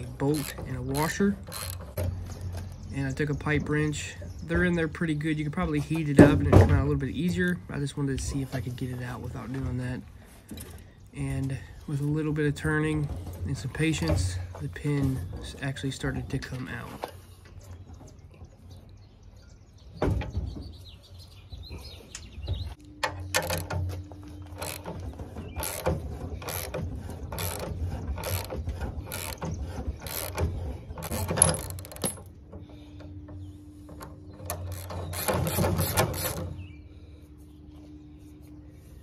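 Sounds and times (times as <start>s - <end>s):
wrench turning press screw: 0.3s - 2.0s, 24.5s - 25.0s, 25.6s - 28.5s, 29.1s - 32.2s, 34.4s - 36.4s.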